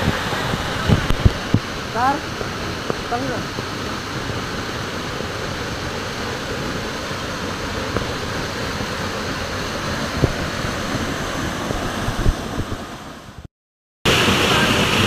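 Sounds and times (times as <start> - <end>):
low thumps on microphone: 0.0 - 1.8, 10.1 - 11.0, 11.6 - 12.9
waterfall rushing onto rocks: 0.0 - 13.4, 14.1 - 15.0.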